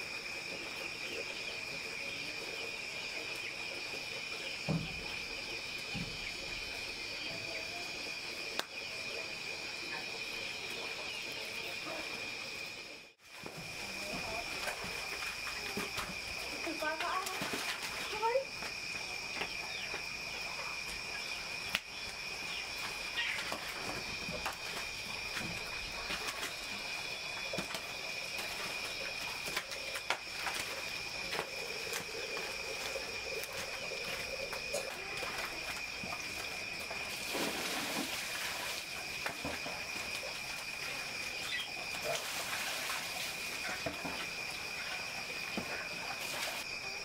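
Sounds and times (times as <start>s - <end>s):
insects chorus: 0.0s - 47.0s
wood fire crackling: 20.8s - 42.2s.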